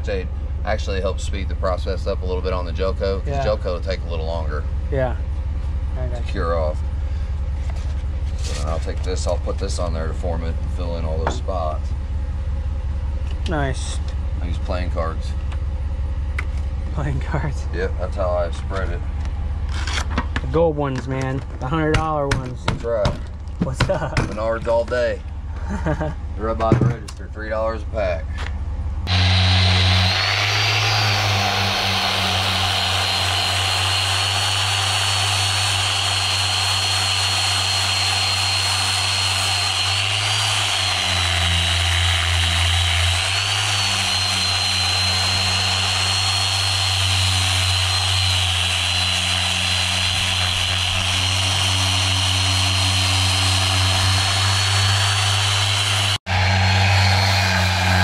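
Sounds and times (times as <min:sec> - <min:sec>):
power tool motor whining: 0:29.0 - 0:58.0.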